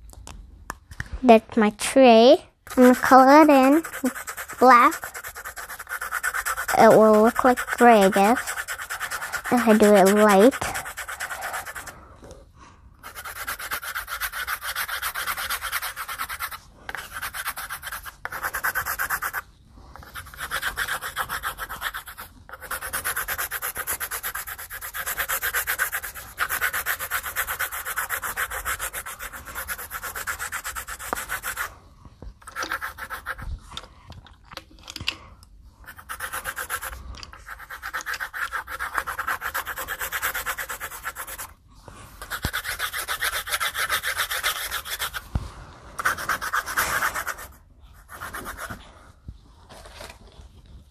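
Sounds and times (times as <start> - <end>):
colored pencil shading on paper: 2.7 - 11.9, 13.0 - 31.7, 32.4 - 33.5, 35.8 - 41.5, 42.2 - 45.3, 46.0 - 48.9.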